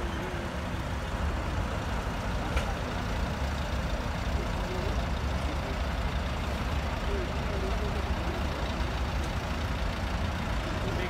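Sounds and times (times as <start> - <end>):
faint distant voices: 2.2 - 11.0.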